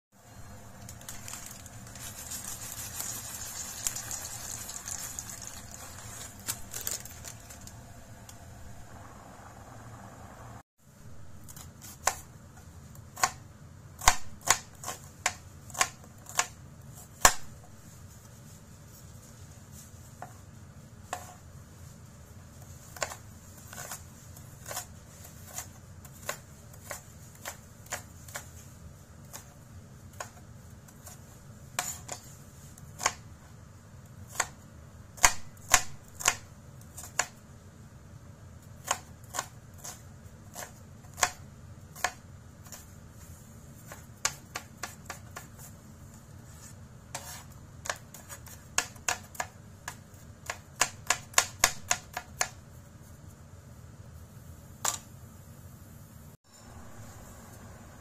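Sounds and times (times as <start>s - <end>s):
knife chopping on cutting board: 14.0s - 17.7s, 35.2s - 37.4s, 38.8s - 42.8s, 43.8s - 45.7s, 46.6s - 52.6s.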